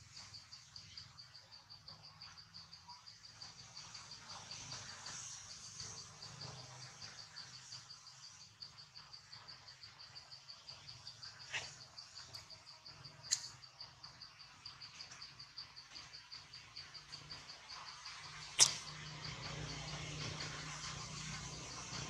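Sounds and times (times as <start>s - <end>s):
insect chirping: 0.0s - 22.0s
short sharp clicks: 18.6s - 18.9s.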